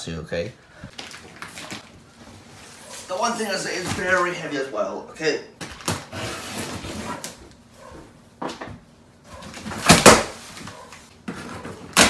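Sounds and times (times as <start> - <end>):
cardboard scraping: 6.0 - 7.4.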